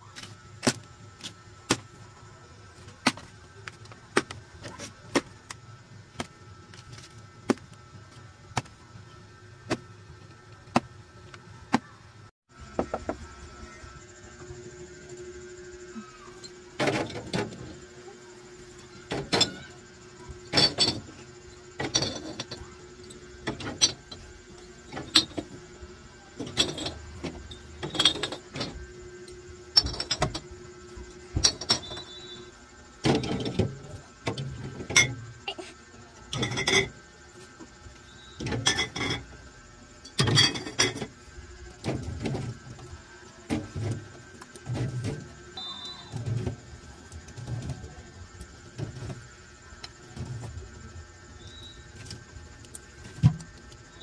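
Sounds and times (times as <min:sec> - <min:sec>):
steady hum: 0:00.0 - 0:54.0
bottles clinking on wire shelves: 0:19.0 - 0:19.8, 0:20.4 - 0:25.6, 0:26.4 - 0:28.8, 0:29.7 - 0:30.5, 0:31.4 - 0:35.6, 0:36.3 - 0:37.0, 0:38.3 - 0:39.4, 0:40.0 - 0:41.2.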